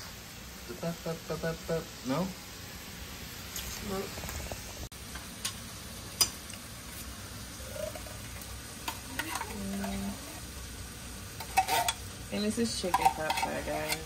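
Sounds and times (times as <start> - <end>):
food sizzling in a pan: 0.0 - 14.0
utensil clicking against pot: 12.8 - 14.0.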